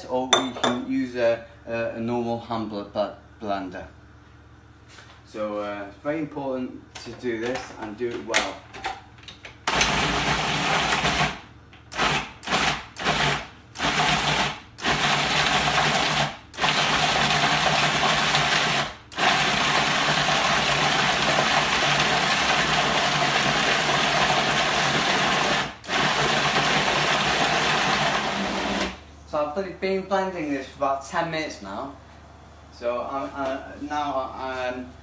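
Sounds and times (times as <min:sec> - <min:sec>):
food processor motor blending: 0:09.7 - 0:29.0.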